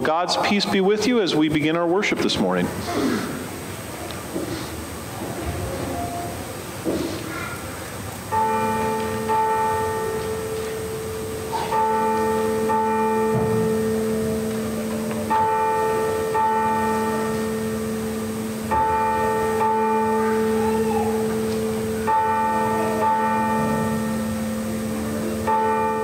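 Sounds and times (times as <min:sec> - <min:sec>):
church bell tolling: 0:08.2 - 0:26.0.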